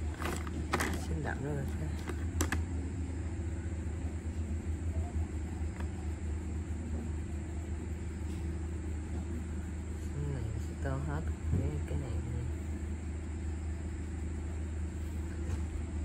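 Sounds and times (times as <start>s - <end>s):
low background rumble: 0.0s - 16.0s.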